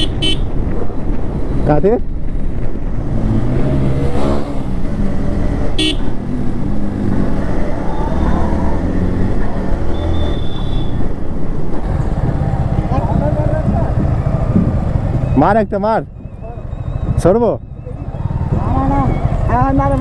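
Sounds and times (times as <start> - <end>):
horn toot: 0.0 - 0.5, 5.8 - 6.1
motorcycle engine running: 16.2 - 20.0.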